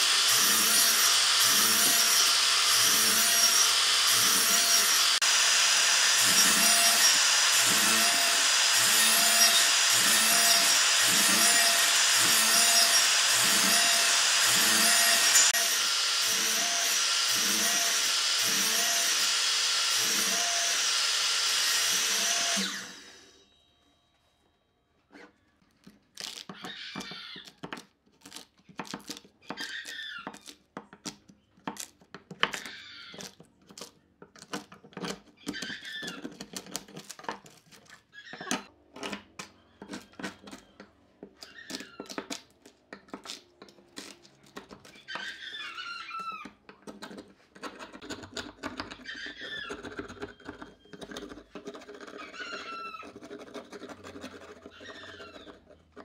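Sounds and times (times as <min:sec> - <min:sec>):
high falling squeak: 0:44.9 - 0:46.5.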